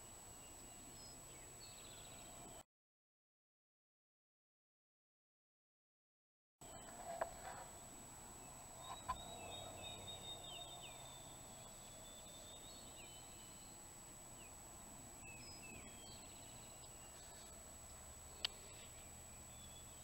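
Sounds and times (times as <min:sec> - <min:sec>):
songbirds singing: 0:00.0 - 0:02.6, 0:06.6 - 0:20.0.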